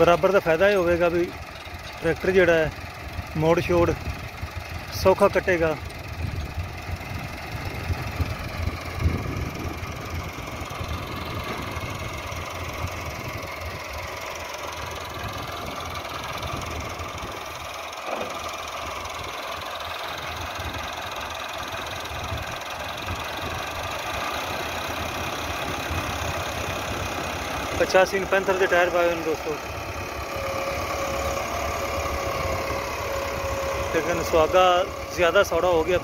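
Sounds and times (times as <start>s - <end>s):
tractor diesel engine running: 0.0s - 36.0s.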